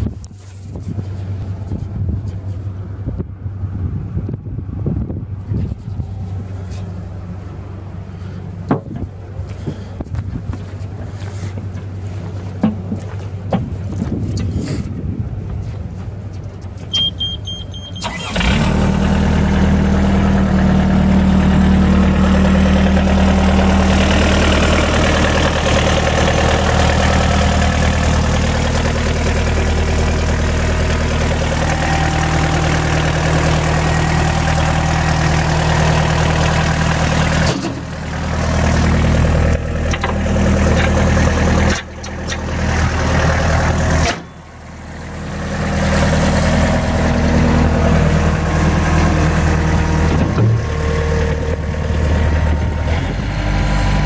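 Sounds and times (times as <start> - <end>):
short beep: 16.9 - 18.1, 31.6 - 33.5
engine starting and idling: 17.8 - 19.8.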